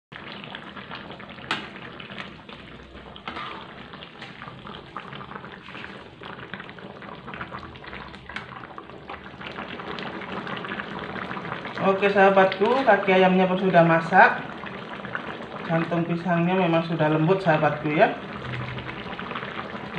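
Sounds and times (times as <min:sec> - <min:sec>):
curry bubbling in a wok: 0:00.1 - 0:19.9
metal spatula scraping a pan: 0:03.2 - 0:04.4.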